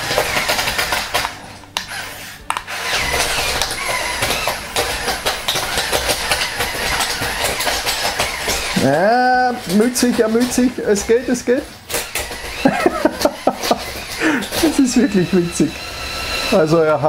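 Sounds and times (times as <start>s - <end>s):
electric motors whining: 0.0s - 17.0s
tracks clattering over plastic bricks: 2.6s - 15.7s.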